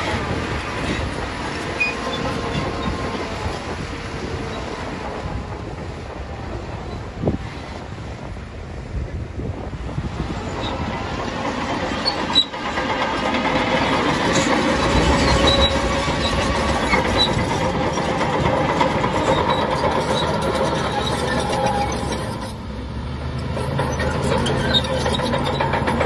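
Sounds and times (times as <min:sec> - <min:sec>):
diesel engine under load: 0:00.0 - 0:26.0
steel tracks clattering: 0:00.0 - 0:26.0.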